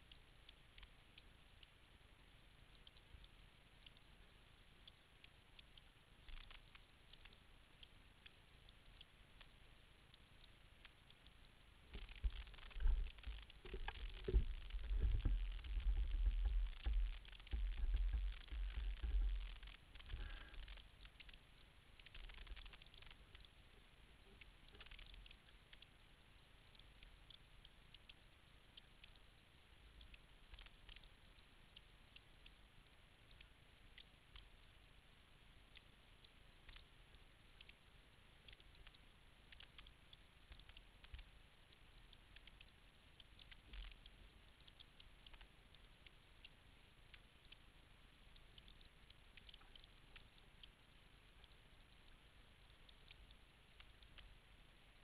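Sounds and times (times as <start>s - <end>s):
faint ticking and patter: 0.0s - 55.0s.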